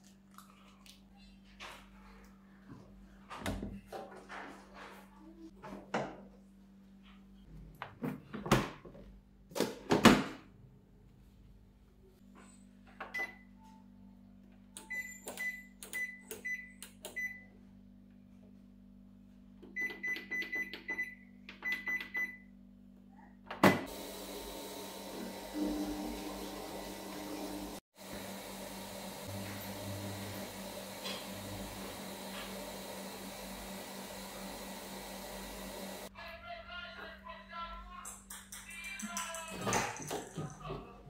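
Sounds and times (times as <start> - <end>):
washing machine hiss: 23.9 - 36.1.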